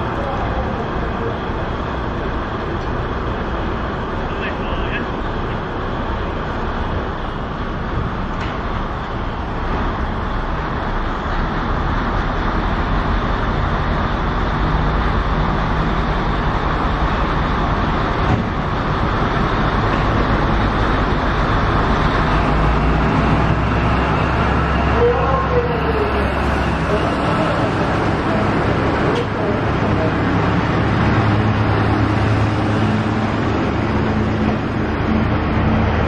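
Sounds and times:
diesel railcar engine growling: 0.0s - 36.0s.

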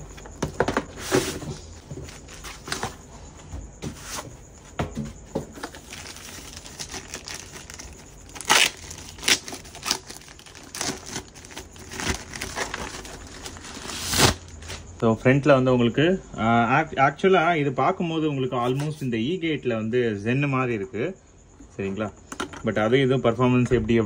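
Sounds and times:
packaging crinkling and rustling: 5.5s - 14.9s
packaging tearing: 5.8s - 14.8s.

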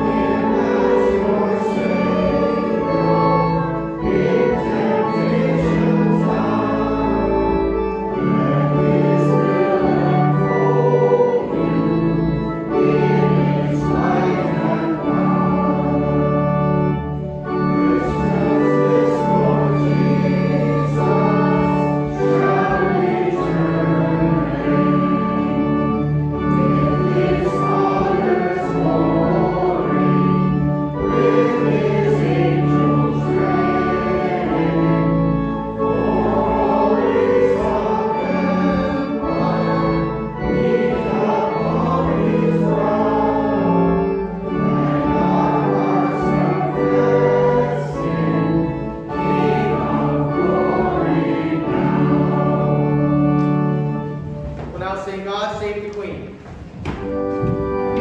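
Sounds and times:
choir singing a hymn: 0.0s - 55.0s, 56.9s - 58.0s
organ chords: 0.0s - 58.0s.

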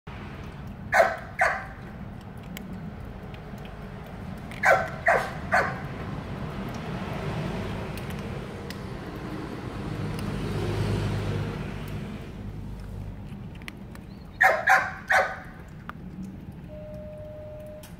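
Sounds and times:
cat chewing dry kibble: 0.2s - 16.8s
dog barking: 0.9s - 1.8s, 4.6s - 5.9s, 14.4s - 15.5s.

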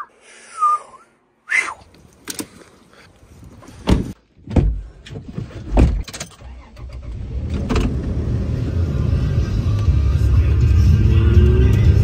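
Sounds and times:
truck door thuds and clunks: 3.8s - 6.2s.

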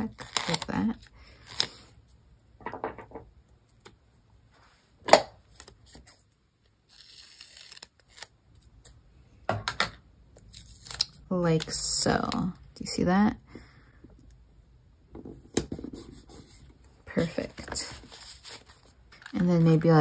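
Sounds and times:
stickers being peeled: 0.0s - 1.9s, 6.8s - 9.0s, 10.4s - 12.5s.

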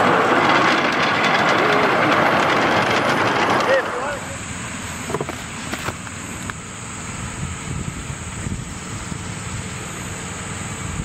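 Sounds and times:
locomotive engine rumbling: 0.0s - 11.0s.

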